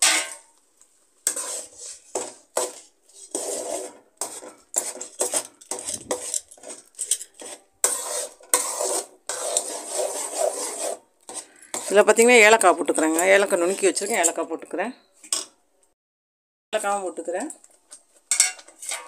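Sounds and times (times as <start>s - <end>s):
metal spatula scraping metal pan: 0.0s - 0.4s, 1.2s - 14.6s, 18.3s - 19.0s.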